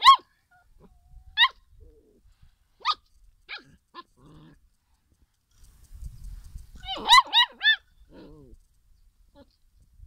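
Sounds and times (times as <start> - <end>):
puppy yipping: 0.0 - 1.6, 6.8 - 8.3.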